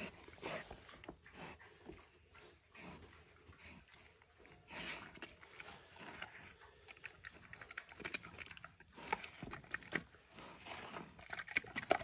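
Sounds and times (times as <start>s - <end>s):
pig chewing and crunching: 0.0s - 12.0s.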